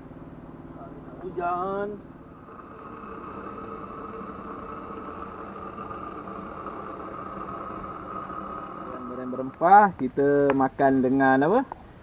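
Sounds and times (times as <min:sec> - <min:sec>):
gas burner hissing: 0:01.1 - 0:10.6.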